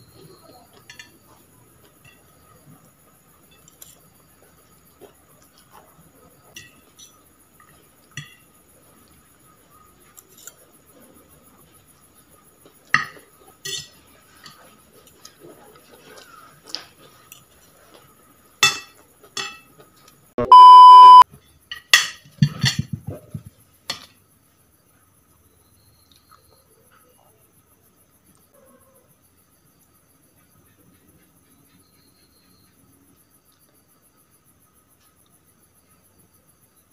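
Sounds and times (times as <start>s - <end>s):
cutlery clinking on a plate: 0.7s - 1.2s, 6.5s - 7.2s, 12.9s - 14.6s, 18.6s - 19.7s
electronic beep: 20.4s - 21.2s.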